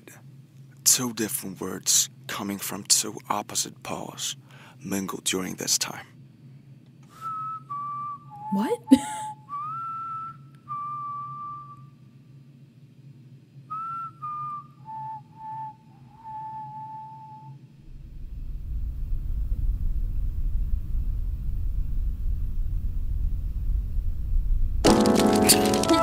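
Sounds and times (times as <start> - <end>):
person whistling: 7.1 - 11.9, 13.7 - 17.6, 25.4 - 26.0
deep low rumble: 17.8 - 26.0.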